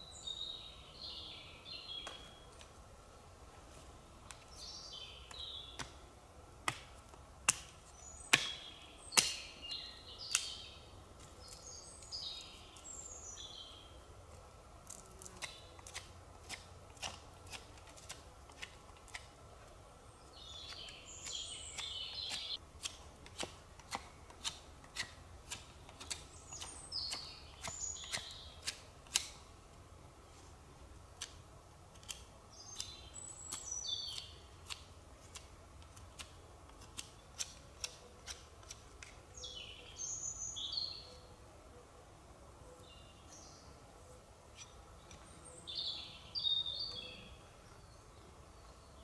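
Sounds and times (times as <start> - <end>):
forest birds singing: 0.0 - 3.4, 4.0 - 6.1, 7.6 - 14.2, 16.6 - 22.6, 24.9 - 29.5, 32.4 - 35.4, 37.0 - 49.0.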